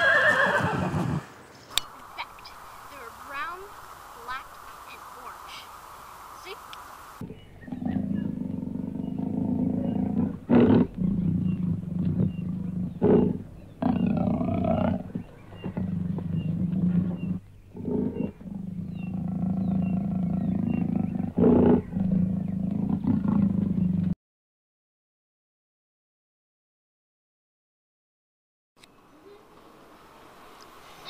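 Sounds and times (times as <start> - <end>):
big cat growling and roaring: 7.2 - 24.2.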